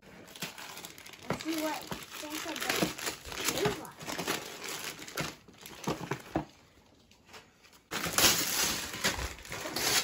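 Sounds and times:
wrapping paper crinkling: 0.0 - 10.0
wrapping paper tearing: 0.2 - 5.8, 7.9 - 10.0.

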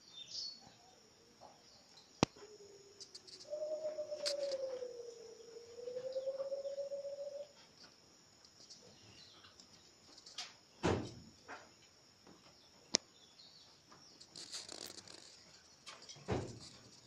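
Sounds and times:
high-pitched background buzz: 0.0 - 17.0
knocks and rustles on cages: 15.8 - 17.0.

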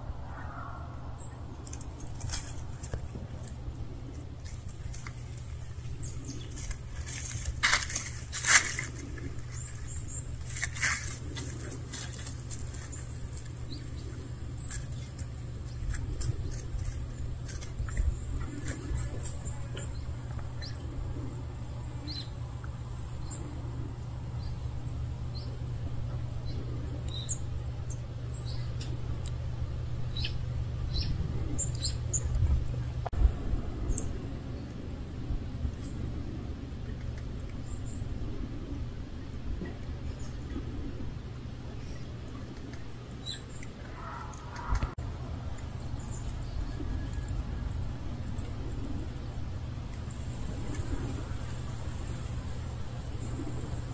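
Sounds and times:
faint bird chirps: 0.0 - 1.5
steady low rumble: 0.0 - 53.9
small clicks and rustles: 1.6 - 5.8.

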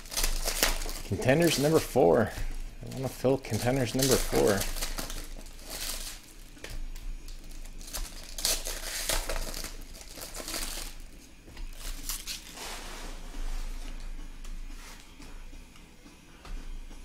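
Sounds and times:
foil wrapper crinkling: 0.0 - 12.6.

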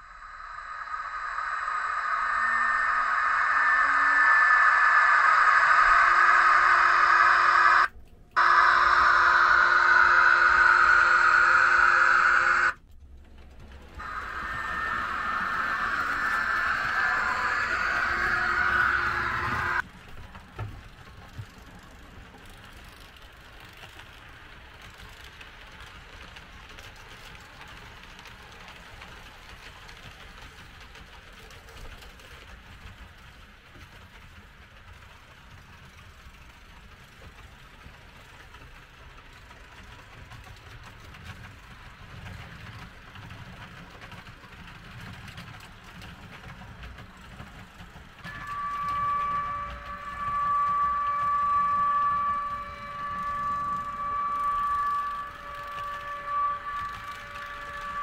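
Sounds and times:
model train motor whirring: 0.0 - 12.8, 14.0 - 19.9, 21.5 - 58.0
steady tone: 0.0 - 12.8, 14.0 - 19.8, 48.2 - 58.0.

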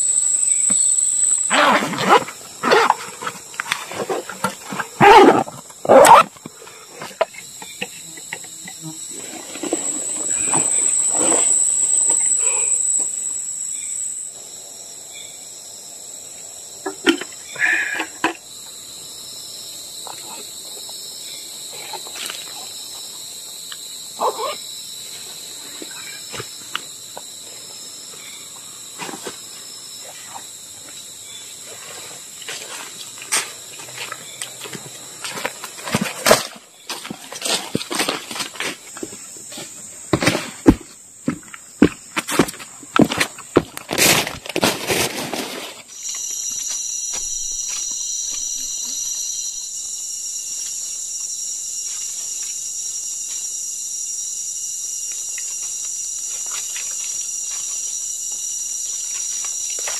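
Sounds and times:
insects shrill drone: 0.0 - 59.9
rustle of dry leaf litter: 43.9 - 47.6.

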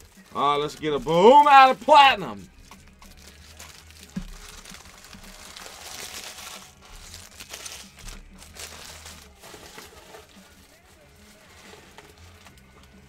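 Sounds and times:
plastic wrapping crinkling and tearing: 2.6 - 13.0.

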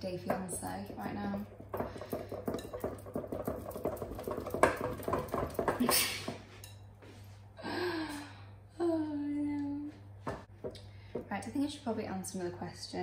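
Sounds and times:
spoon stirring thick batter: 0.0 - 6.8
spoon knocking on glass bowl: 0.3 - 6.0.

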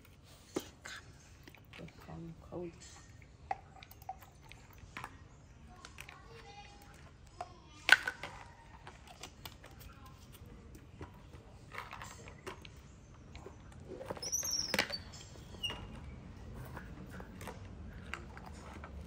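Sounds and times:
plastic bottles clicking and knocking: 5.8 - 19.0.

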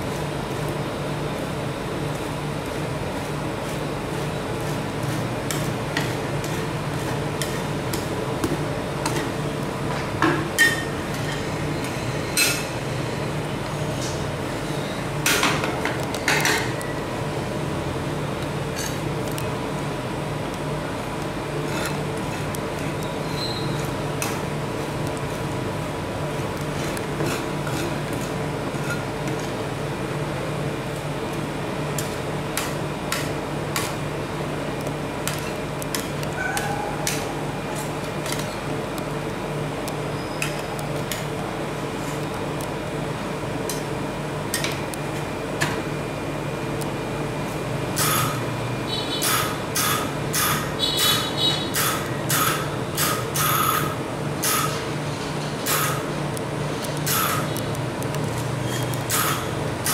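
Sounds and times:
metal spatulas scraping cold plate: 26.8 - 29.5.

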